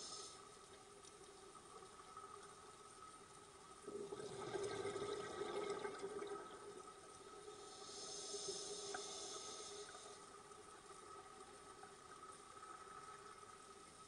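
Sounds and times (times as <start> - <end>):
regulator air hiss: 0.0 - 0.6, 7.5 - 10.5
exhaled bubbles gurgling: 3.8 - 13.5.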